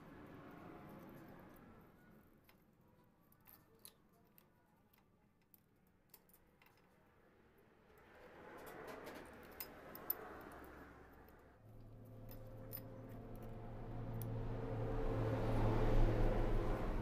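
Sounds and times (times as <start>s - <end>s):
small metal parts clicking: 2.4s - 7.1s, 8.5s - 14.4s.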